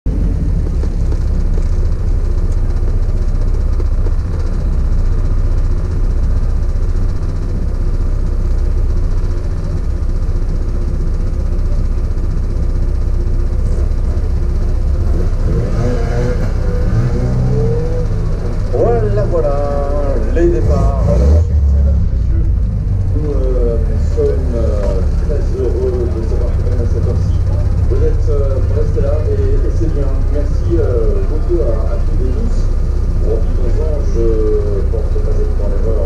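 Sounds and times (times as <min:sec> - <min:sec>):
car engine idling: 0:00.1 - 0:36.0.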